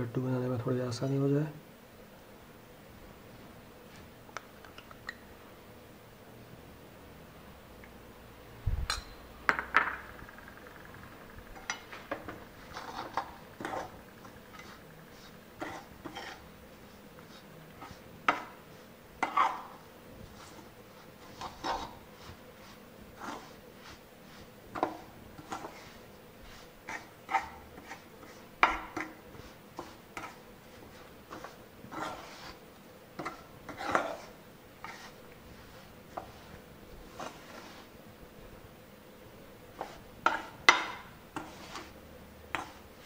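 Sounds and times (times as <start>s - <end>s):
spoon scraping metal pan: 11.5s - 16.5s, 19.2s - 19.8s, 20.4s - 32.6s, 33.2s - 37.9s, 39.8s - 43.0s.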